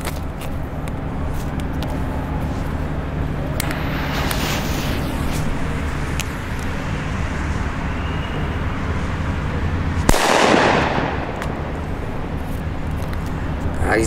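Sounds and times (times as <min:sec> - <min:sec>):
low rumble: 0:03.0 - 0:09.6
firecracker bang: 0:03.6 - 0:06.8, 0:10.1 - 0:11.8.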